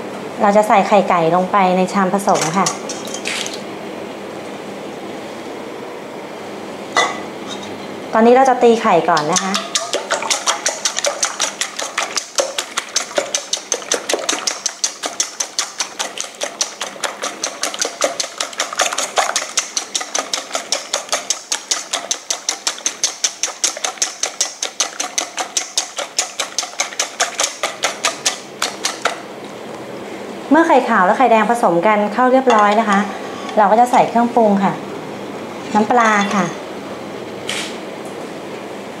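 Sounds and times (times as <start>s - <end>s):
wire whisk clicking on metal bowl: 9.1s - 29.2s.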